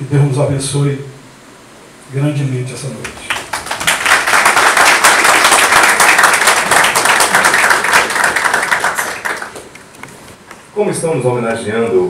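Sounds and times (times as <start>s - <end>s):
audience applauding: 3.2s - 10.0s.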